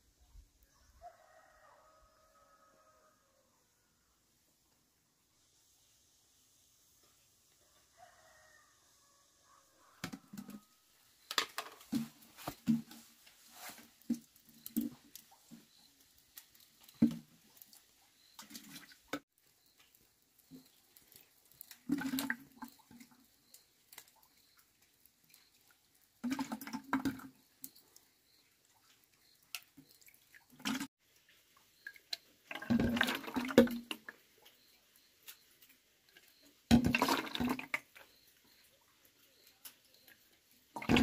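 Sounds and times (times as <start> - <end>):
hot lard pouring into glass jar: 19.6 - 23.6, 26.2 - 28.4, 31.8 - 34.1, 36.3 - 38.3, 40.7 - 41.0.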